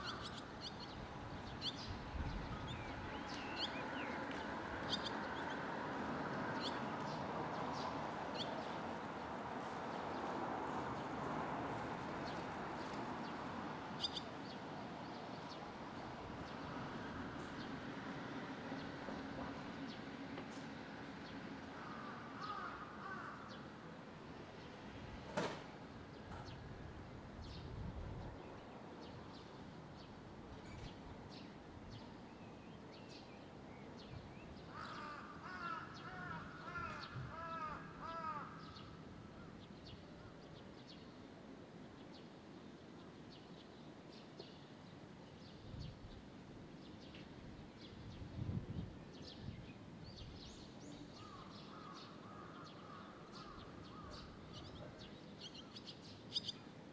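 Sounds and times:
high twittering chirps of fledglings: 0.0 - 5.6, 47.8 - 56.7.

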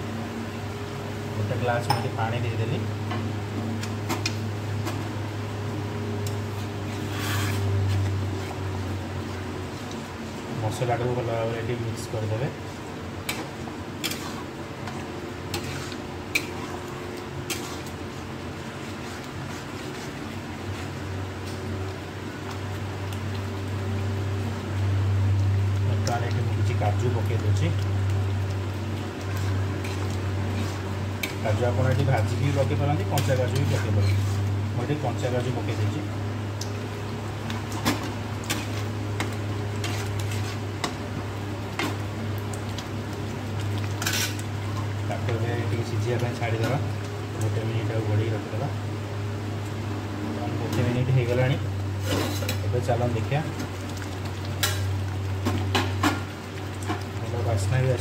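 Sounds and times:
steady low hum: 0.0 - 58.0
ladle scraping a pan: 6.5 - 8.6, 12.7 - 20.9, 29.2 - 34.5, 37.5 - 41.0, 43.8 - 44.4, 52.0 - 52.7
metal spatula scraping pan: 6.9 - 7.7, 13.3 - 14.4, 15.5 - 16.6, 52.0 - 52.6.

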